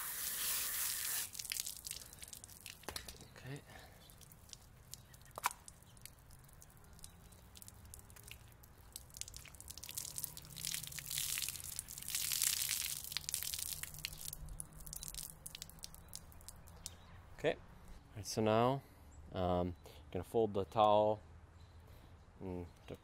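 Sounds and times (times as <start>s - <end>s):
water splashing onto asphalt: 0.0s - 17.0s
water dripping: 0.0s - 17.1s.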